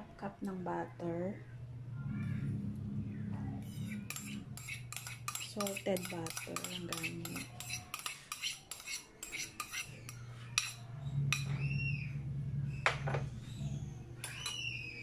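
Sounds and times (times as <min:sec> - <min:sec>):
ceramic bowl clinking on steel bowl: 0:04.1 - 0:09.8.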